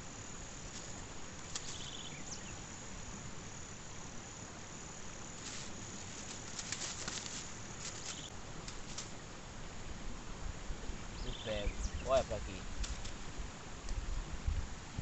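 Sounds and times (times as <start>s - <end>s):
insects chirring: 0.0s - 14.1s
crackling clicks: 0.7s - 2.0s, 6.2s - 9.2s, 12.8s - 13.2s.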